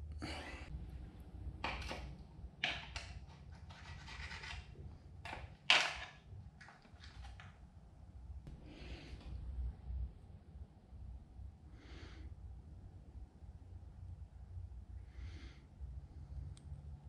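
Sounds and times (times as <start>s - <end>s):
screwdriver scraping metal: 2.6s - 6.1s.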